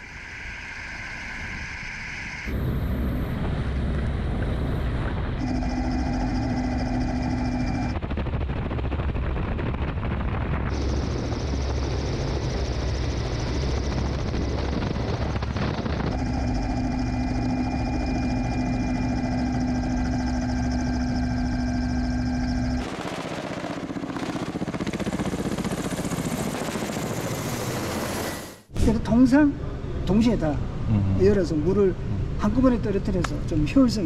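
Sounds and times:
turbine whine: 0.0s - 28.7s
helicopter rotor chop: 2.4s - 28.7s.

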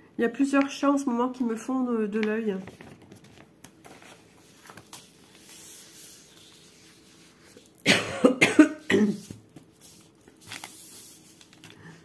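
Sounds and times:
paper sheets rustling: 2.2s - 7.8s, 8.8s - 12.0s
person coughing: 7.8s - 9.4s.

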